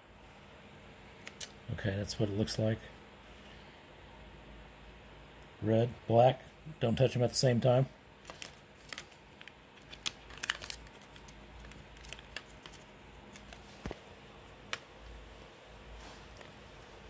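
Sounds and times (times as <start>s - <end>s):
faint handling rustle: 8.2s - 17.0s.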